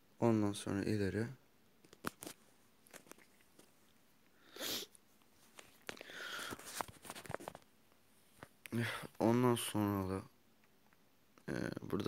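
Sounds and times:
person breathing close to microphone: 5.9s - 6.9s.

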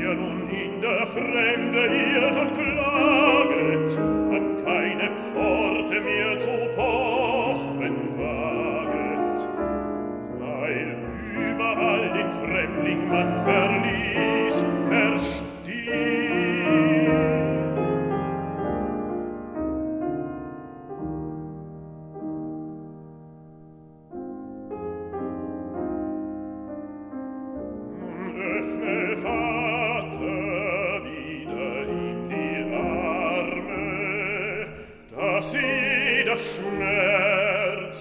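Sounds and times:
baritone singing with vibrato: 0.0s - 17.9s, 28.0s - 38.0s
grand piano accompaniment: 0.0s - 38.0s.

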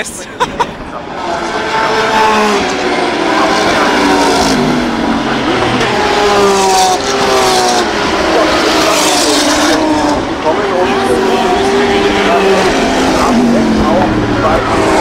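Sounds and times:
race car engines passing: 0.0s - 15.0s.

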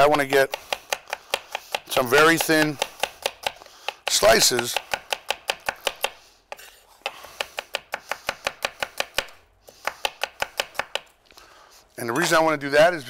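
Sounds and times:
knife tapping on cutting board: 0.1s - 4.0s.

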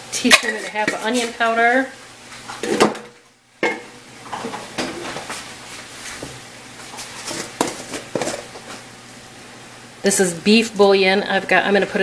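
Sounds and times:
containers and utensils clinking: 7.2s - 8.8s.

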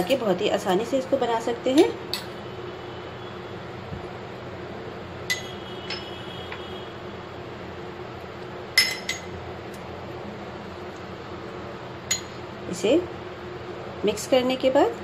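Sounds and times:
spoon clinking against bowls: 1.8s - 2.4s, 5.3s - 6.1s, 8.8s - 9.4s, 12.1s - 12.4s.

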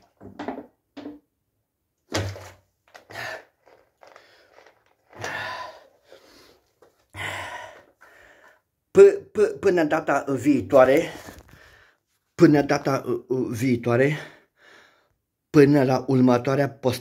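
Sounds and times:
heavy breathing: 3.0s - 8.6s, 11.2s - 12.0s.

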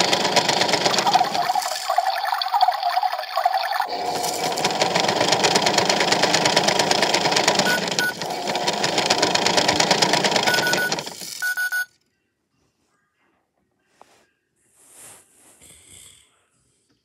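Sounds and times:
toy washing machine rattling: 0.0s - 11.8s
short high beeps: 10.5s - 11.9s.

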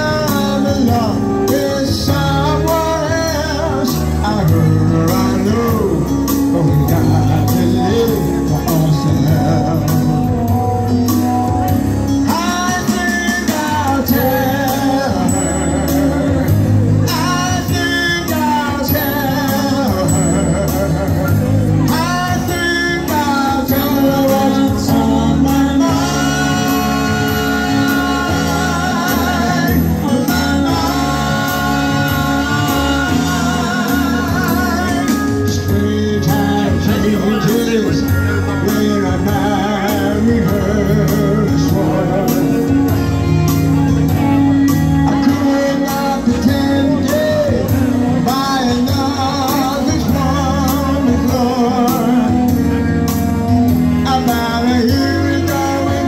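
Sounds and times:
backing keyboard accompaniment: 0.0s - 56.0s
person singing with vibrato: 12.2s - 56.0s
steady drum beat: 24.7s - 36.9s.

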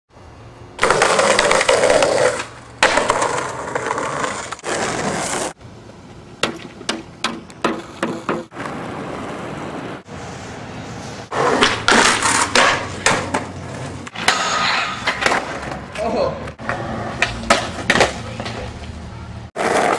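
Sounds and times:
skateboard wheels rolling on pavement: 0.2s - 19.9s
skateboard clacking on concrete: 0.8s - 5.4s, 6.4s - 8.8s, 11.4s - 19.0s.

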